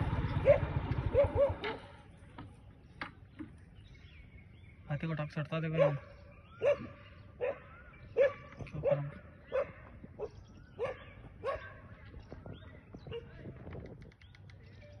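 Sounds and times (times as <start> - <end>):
dog barking: 0.4 - 1.8, 5.7 - 11.9.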